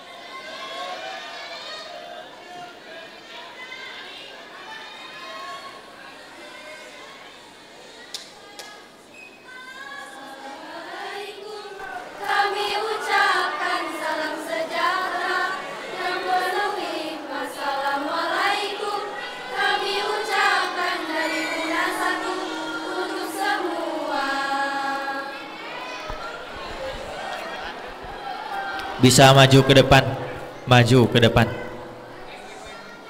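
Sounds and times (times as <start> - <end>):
female choir singing: 9.6 - 32.4.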